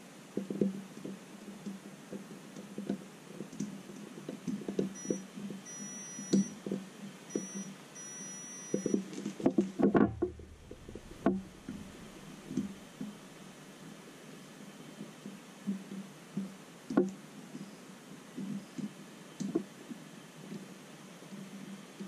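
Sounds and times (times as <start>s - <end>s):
multimeter beeps: 5.0s - 6.6s, 7.3s - 9.0s
handling noise: 8.8s - 13.0s
test probes tapping: 10.0s - 12.8s.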